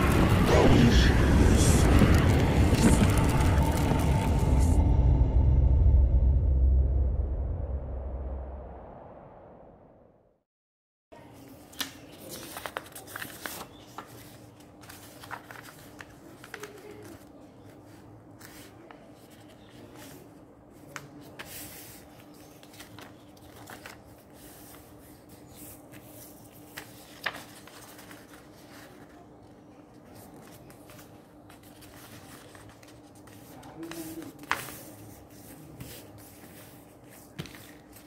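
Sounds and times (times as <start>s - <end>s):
paper rustling and sliding: 11.6s - 29.3s, 29.9s - 38.0s.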